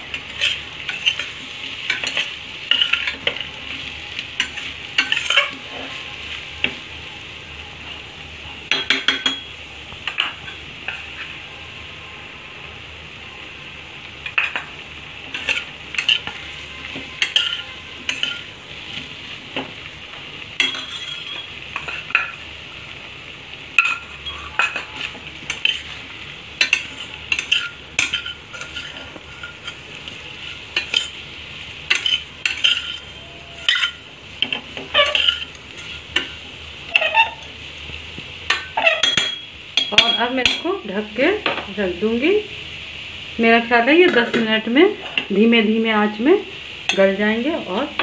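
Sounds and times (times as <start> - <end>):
potatoes sizzling: 0.0 - 48.0
spoon scraping metal pot: 17.2 - 18.5, 23.8 - 25.9, 26.6 - 29.8, 31.9 - 37.5, 38.5 - 40.2.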